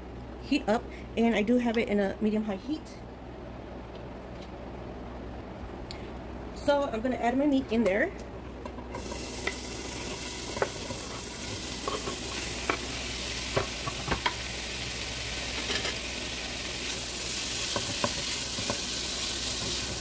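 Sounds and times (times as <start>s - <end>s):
utensils knocking and scraping pot: 8.7s - 12.8s, 17.6s - 20.0s
meat sizzling in oil: 9.0s - 20.0s.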